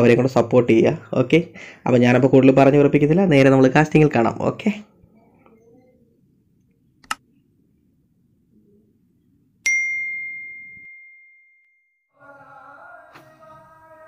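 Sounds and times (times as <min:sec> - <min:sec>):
notification bell ding: 0:09.6 - 0:11.8.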